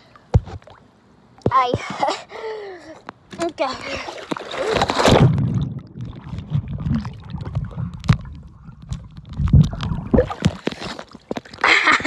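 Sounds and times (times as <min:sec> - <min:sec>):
muffled underwater sloshing: 0:04.0 - 0:11.7
underwater clicks: 0:05.1 - 0:11.6.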